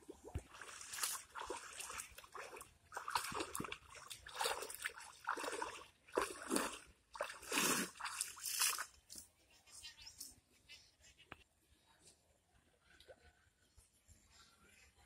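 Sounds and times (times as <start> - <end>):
wading through water: 0.0 - 9.2.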